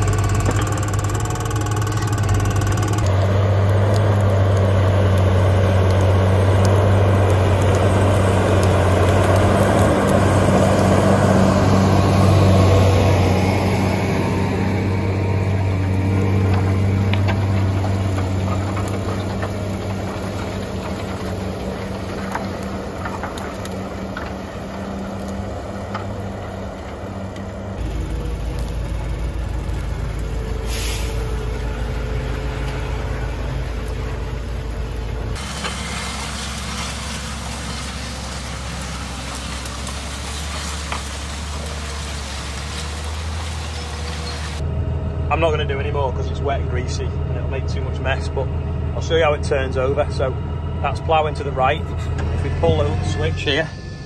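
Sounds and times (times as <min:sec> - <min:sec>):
tractor engine under load: 0:00.0 - 0:54.0
brief hiss: 0:30.6 - 0:31.3.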